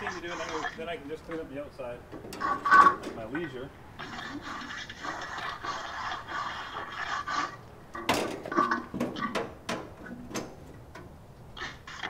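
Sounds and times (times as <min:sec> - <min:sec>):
metal clanks and knocks: 0:02.1 - 0:03.3, 0:08.0 - 0:11.2.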